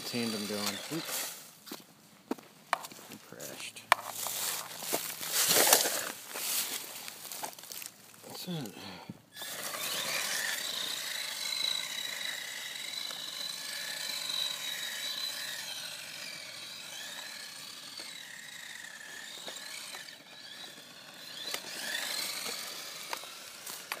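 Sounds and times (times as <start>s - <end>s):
rc car electric motor whining: 0.0s - 1.5s, 9.3s - 24.0s.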